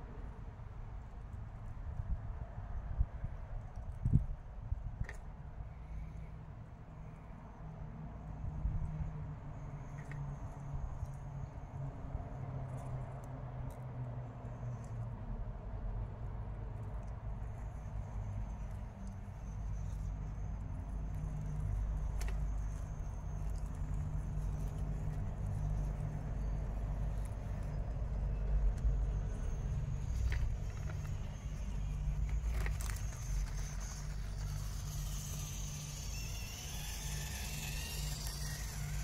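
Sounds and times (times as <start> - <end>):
rc crawlers running over rocks: 17.4 - 39.0.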